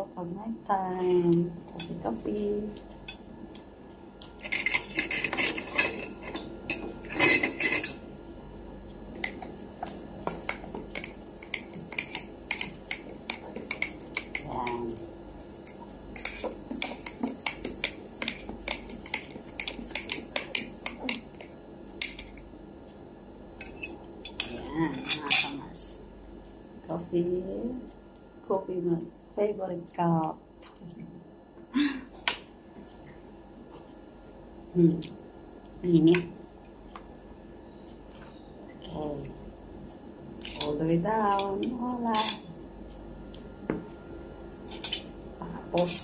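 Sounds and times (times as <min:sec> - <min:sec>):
cutlery clinking on a plate: 0:04.4 - 0:08.0.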